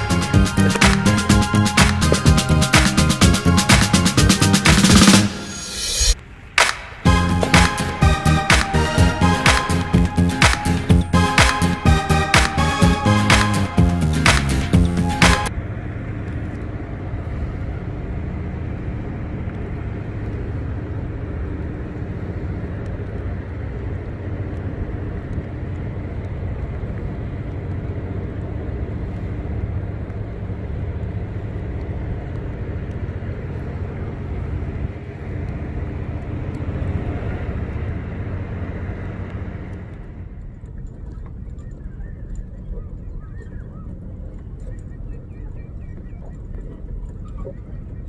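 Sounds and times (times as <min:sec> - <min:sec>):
ship engines droning: 0:00.0 - 0:48.0.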